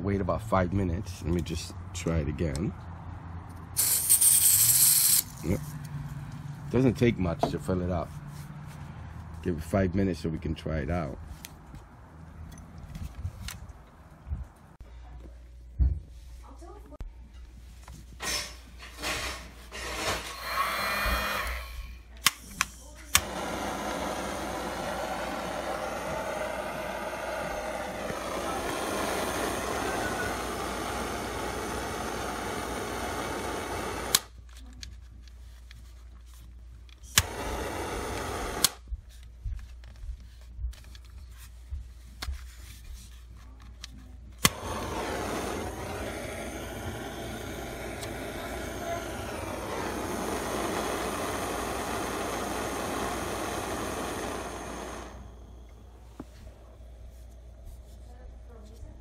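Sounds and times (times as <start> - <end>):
torch flame hissing: 3.8 - 5.6, 18.4 - 22.4, 23.1 - 34.3, 37.0 - 38.8, 44.4 - 58.6
butane torch igniter clicks: 22.2 - 34.3, 37.1 - 38.8, 44.4 - 55.8.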